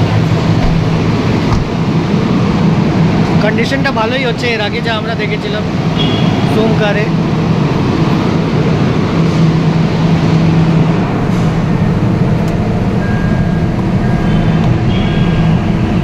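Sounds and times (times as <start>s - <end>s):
vehicle drone: 0.0s - 16.0s
faint high beeps: 13.0s - 15.7s.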